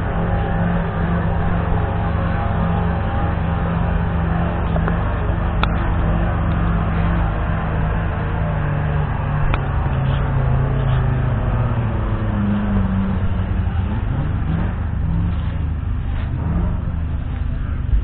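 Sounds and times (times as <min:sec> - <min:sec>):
engine idling: 0:00.0 - 0:18.0.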